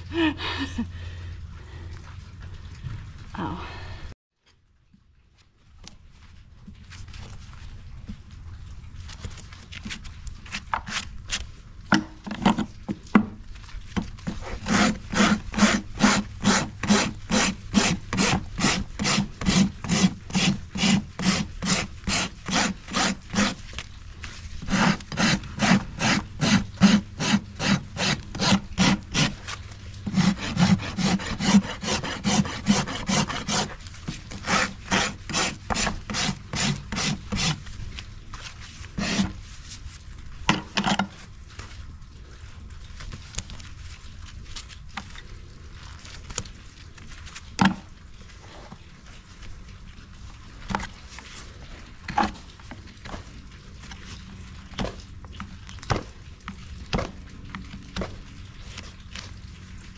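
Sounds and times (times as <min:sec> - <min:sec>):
hoof rasp scraping hoof: 0:09.6 - 0:11.5, 0:12.1 - 0:39.9.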